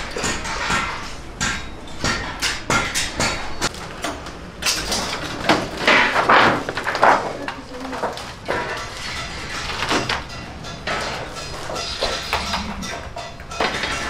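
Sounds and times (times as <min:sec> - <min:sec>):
metal sheet clattering: 0:02.3 - 0:14.0
metal sheet scraping: 0:08.0 - 0:14.0.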